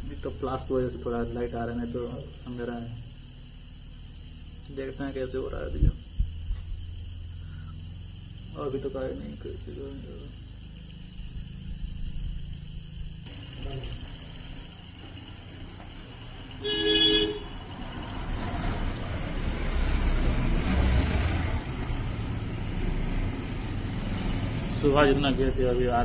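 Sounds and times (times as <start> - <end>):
crickets trilling: 0.0 - 26.0
vehicle engine rumble: 15.4 - 26.0
vehicle horn: 16.6 - 17.6.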